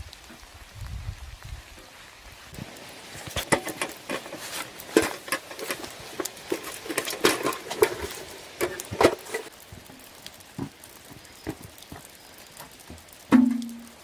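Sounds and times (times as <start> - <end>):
hand broom sweeping: 2.9 - 9.5
scrapes and knocks against metal bucket: 3.2 - 9.5, 13.3 - 13.9.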